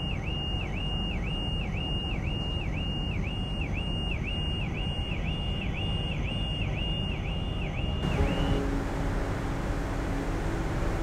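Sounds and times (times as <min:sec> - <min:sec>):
car alarm wailing: 0:00.0 - 0:08.8
steady low rumble: 0:08.0 - 0:11.0.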